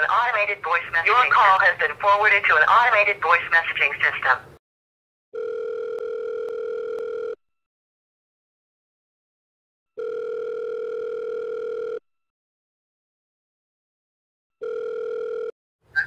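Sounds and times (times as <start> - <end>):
telephone ringback tone: 5.4 - 7.4, 10.0 - 12.0, 14.6 - 15.5.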